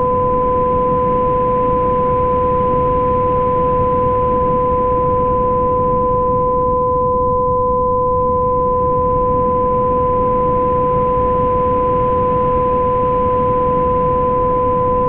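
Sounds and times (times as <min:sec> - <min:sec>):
steady pure tones: 0:00.0 - 0:15.0.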